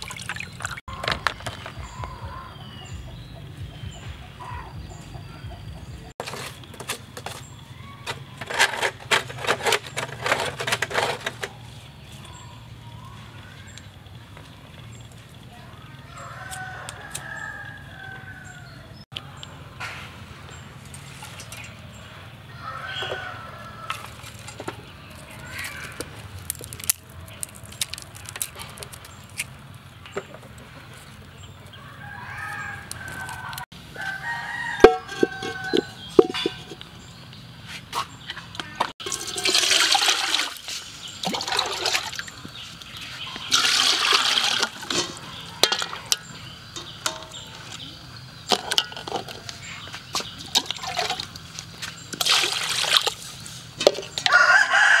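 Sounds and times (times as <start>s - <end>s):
burning twigs crackling: 23.6s - 30.1s.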